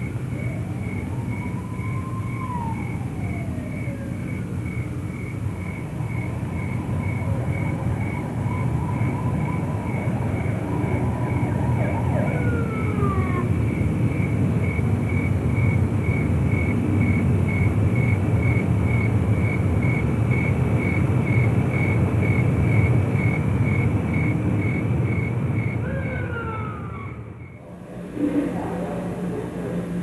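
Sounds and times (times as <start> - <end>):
street traffic rumble: 0.0 - 30.0
faint pulsing high tone: 27.5 - 30.0.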